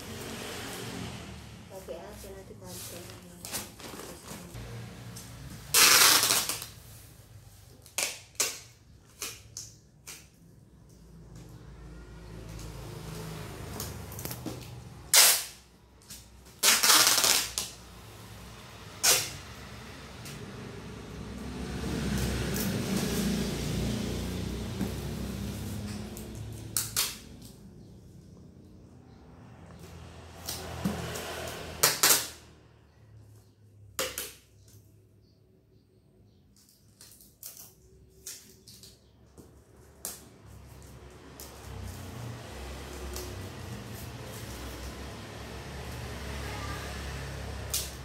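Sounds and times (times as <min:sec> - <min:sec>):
packing tape ripping: 0:05.7 - 0:06.8, 0:15.1 - 0:17.8, 0:19.0 - 0:19.4, 0:26.3 - 0:27.6, 0:31.8 - 0:32.4, 0:47.6 - 0:48.0.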